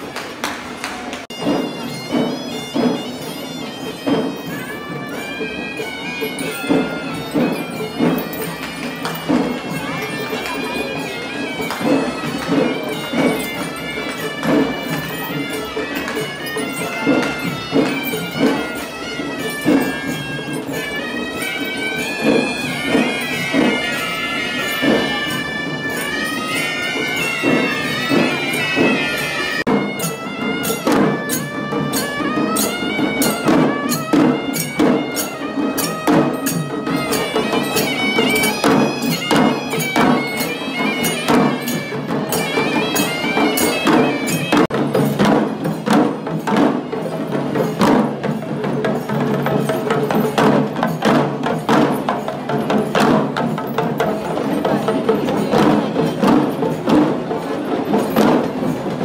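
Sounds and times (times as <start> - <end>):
drums beating fast: 0.6 - 59.0
reed pipe melody: 1.2 - 45.9.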